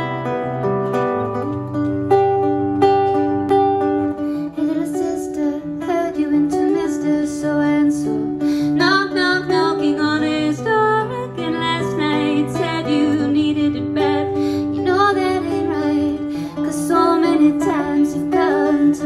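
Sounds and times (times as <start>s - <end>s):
acoustic guitar picking: 0.0s - 19.0s
woman singing: 4.4s - 19.0s.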